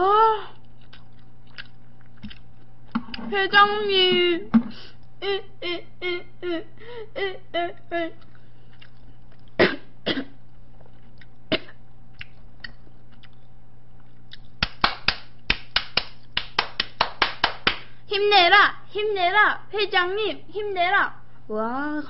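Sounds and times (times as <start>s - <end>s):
hand clapping: 14.6s - 17.9s.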